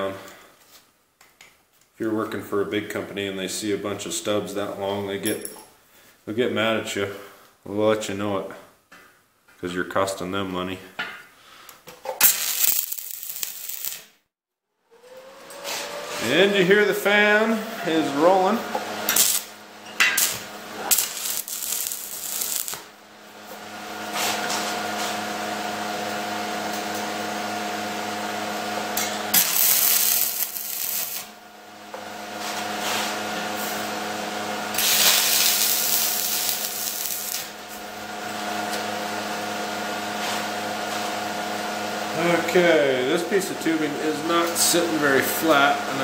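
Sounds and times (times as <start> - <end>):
welder cooling fan humming: 12.2 - 14.0, 14.9 - 46.0
crackling welding arc hiss: 12.2 - 14.1, 19.0 - 22.9, 29.3 - 31.4, 34.7 - 37.9.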